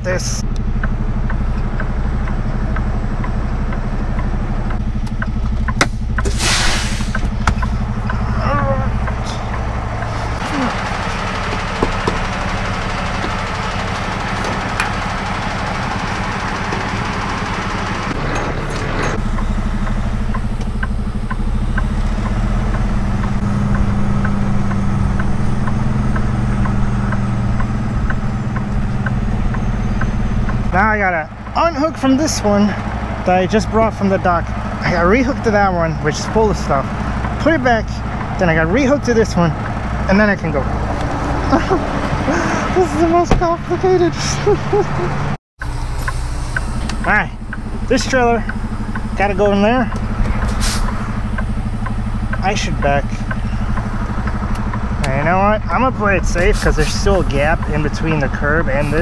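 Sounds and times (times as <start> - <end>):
diesel engine idling: 0.0 - 59.0
air brake hiss: 6.2 - 7.2, 50.5 - 50.9.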